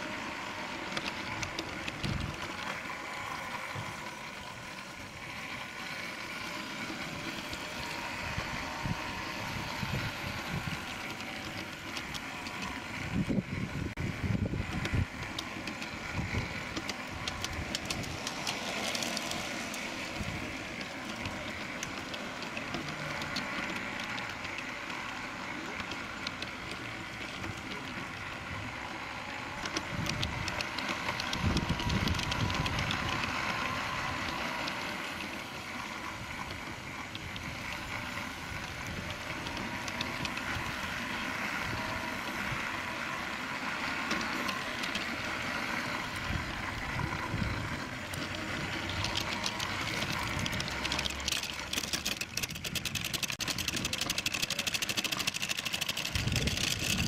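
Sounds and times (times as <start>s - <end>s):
steam locomotive hiss and rumble: 0.0s - 51.7s
wheels clicking on rails: 0.0s - 57.0s.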